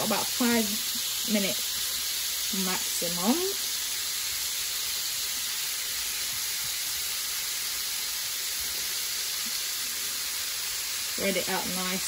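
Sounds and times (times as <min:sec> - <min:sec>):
prawns sizzling in a frying pan: 0:00.0 - 0:12.0.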